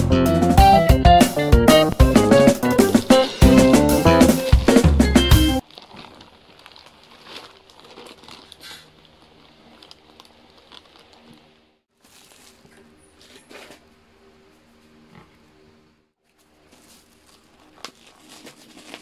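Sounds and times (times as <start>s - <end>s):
loud background music: 0.0s - 5.6s
bubble wrap rustling: 2.0s - 13.8s, 16.2s - 19.0s
plastic mailer bag crinkling: 3.0s - 13.8s, 16.3s - 19.0s.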